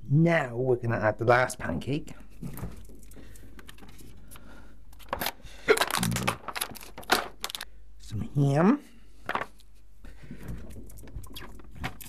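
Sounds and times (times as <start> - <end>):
plastic food packaging crinkling: 5.0 - 7.7.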